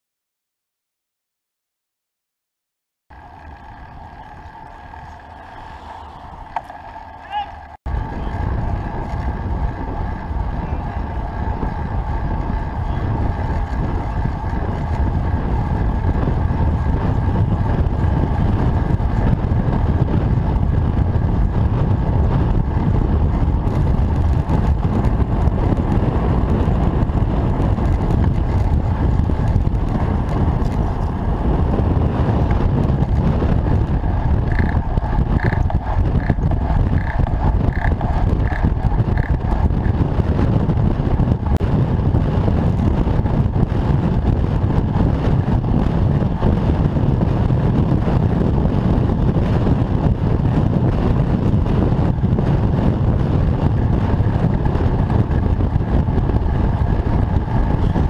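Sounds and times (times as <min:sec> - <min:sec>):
wind and road rumble: 0:03.1 - 0:58.0.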